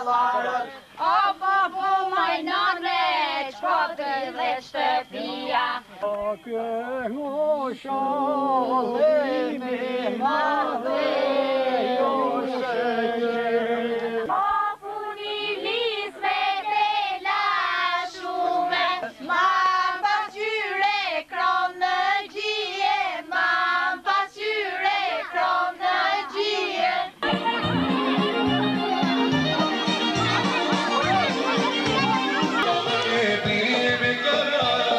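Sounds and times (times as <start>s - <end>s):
women singing together: 0.0s - 6.0s, 7.9s - 27.8s, 28.6s - 34.9s
instrumental folk music: 26.4s - 34.9s.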